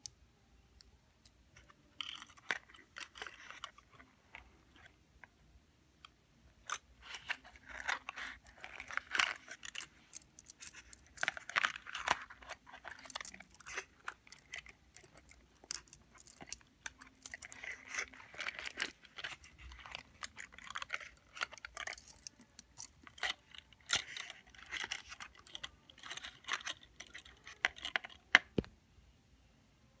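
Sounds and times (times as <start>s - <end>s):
metal bracelets jangling: 8.6s - 27.9s.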